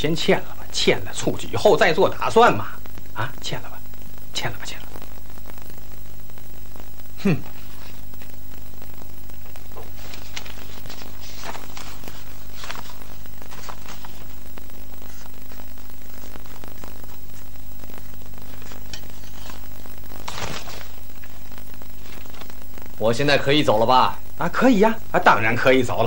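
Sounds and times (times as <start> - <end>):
mains hum and hiss: 0.0 - 26.0
paper rustling: 7.5 - 23.5.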